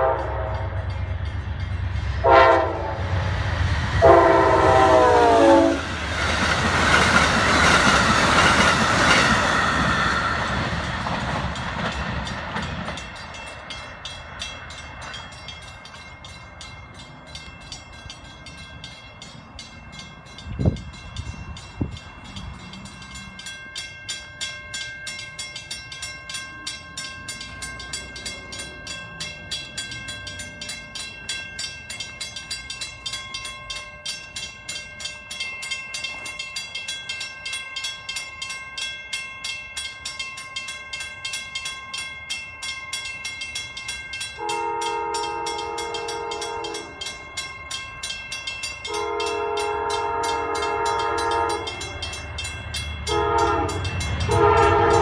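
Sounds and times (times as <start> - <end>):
train horn blasts: 0.0 - 1.0, 2.2 - 3.3, 4.0 - 6.0, 44.4 - 47.1, 48.8 - 52.1, 53.0 - 55.0
crossing warning bell ringing: 0.0 - 55.0.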